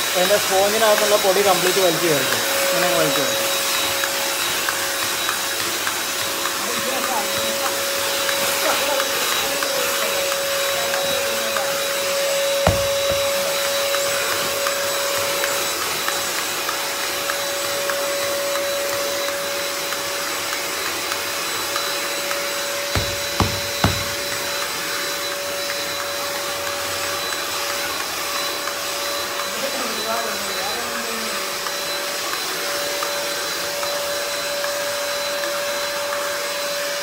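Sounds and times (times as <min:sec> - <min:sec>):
handheld vacuum cleaner whining: 0:00.0 - 0:37.0
sharp knock: 0:12.7 - 0:13.6, 0:23.0 - 0:24.6.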